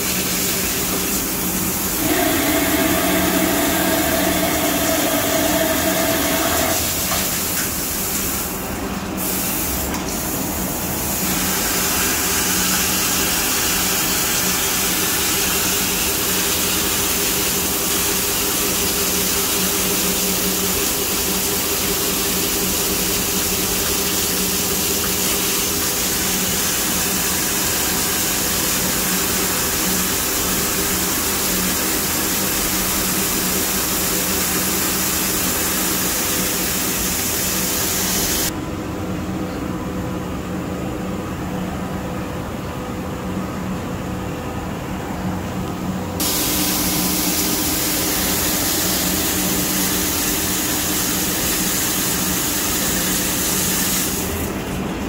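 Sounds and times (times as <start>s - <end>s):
coolant spray hiss: 0.0s - 38.5s, 46.2s - 54.6s
machine hum: 0.7s - 9.1s.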